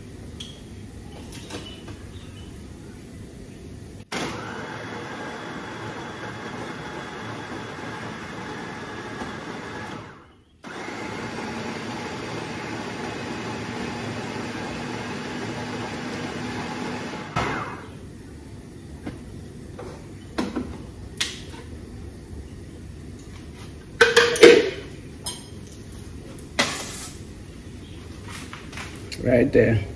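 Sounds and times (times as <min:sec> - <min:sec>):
blender running: 0:04.1 - 0:18.0.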